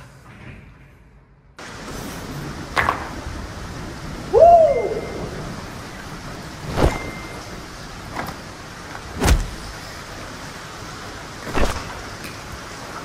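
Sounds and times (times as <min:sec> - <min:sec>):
steady background hiss: 0:00.0 - 0:13.0
cloth whooshing through air: 0:06.5 - 0:07.3, 0:09.0 - 0:09.8, 0:11.4 - 0:12.1.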